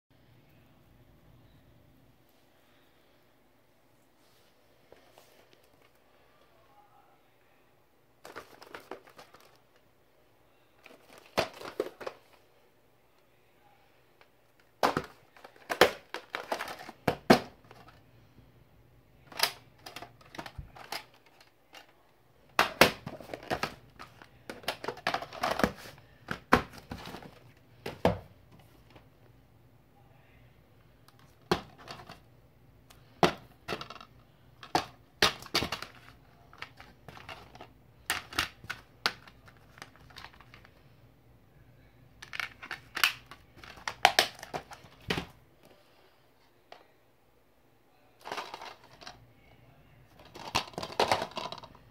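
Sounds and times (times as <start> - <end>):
plastic cases clicking and tapping: 14.8 - 18.0, 19.3 - 21.9, 22.5 - 28.2, 33.2 - 40.6, 42.2 - 45.3, 48.2 - 49.1, 50.2 - 51.7.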